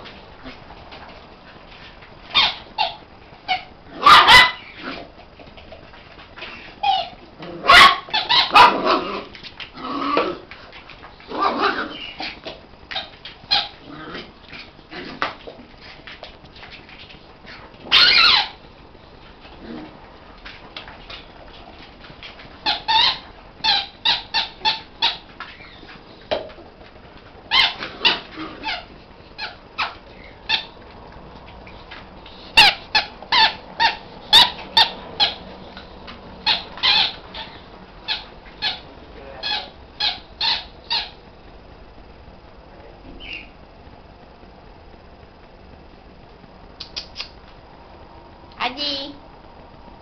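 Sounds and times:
small dog yipping and squealing: 2.3 - 4.8, 6.5 - 8.8, 17.8 - 18.6, 22.6 - 25.9, 27.5 - 30.8, 36.4 - 38.8.

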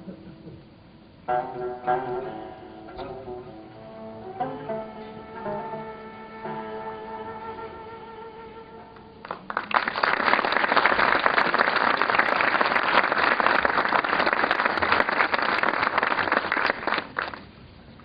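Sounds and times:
audience applauding: 9.2 - 17.5.

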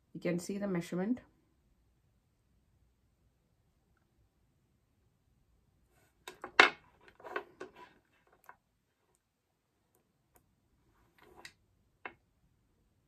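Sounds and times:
clicks and knocks on wooden table: 6.3 - 8.6.

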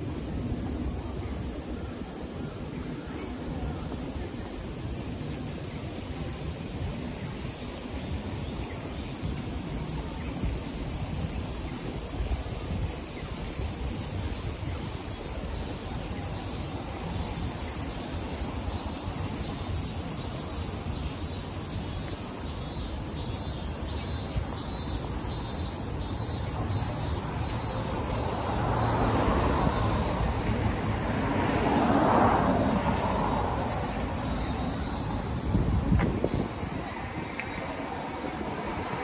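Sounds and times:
traffic rumble: 0.0 - 39.0
vehicle passing: 27.4 - 35.8.

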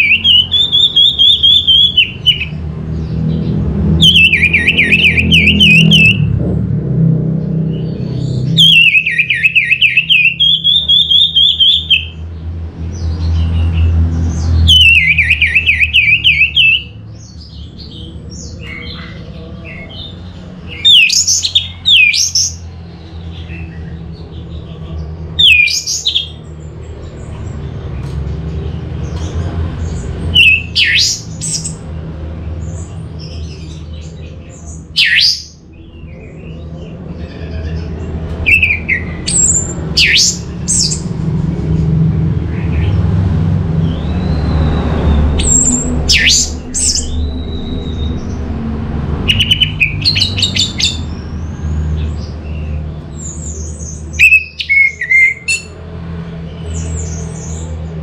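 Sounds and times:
thrush singing: 13.2 - 58.0.

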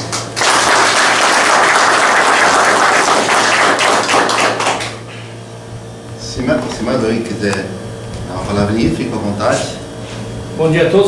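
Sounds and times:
small group applauding: 0.0 - 5.1.

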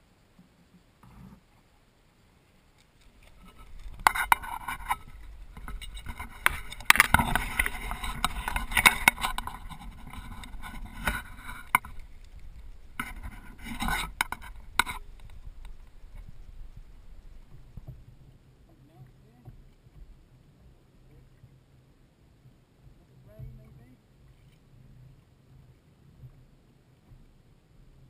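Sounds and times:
water splashing against kayak: 0.0 - 28.0
knocks and scrapes from handling: 3.0 - 16.5.

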